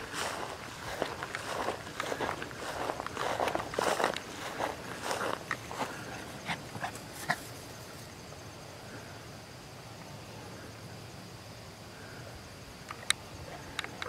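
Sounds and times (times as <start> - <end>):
footsteps in grass: 0.0 - 7.6
insects trilling: 0.0 - 14.0.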